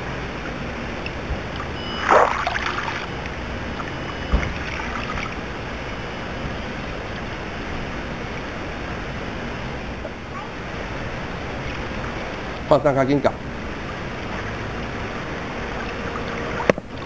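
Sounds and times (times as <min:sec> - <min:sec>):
water churning and splashing: 0:00.0 - 0:17.0.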